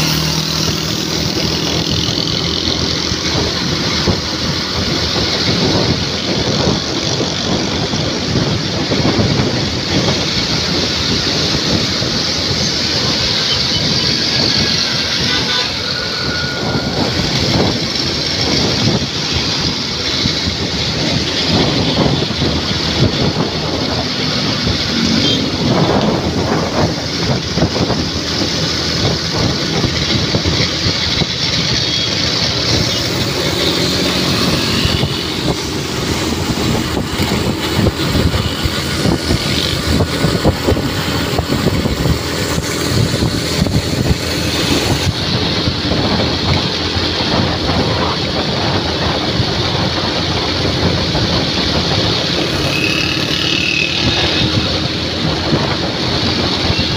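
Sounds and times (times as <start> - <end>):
vehicle road noise: 0.0 - 56.9
wind fluttering on microphone: 0.0 - 56.9.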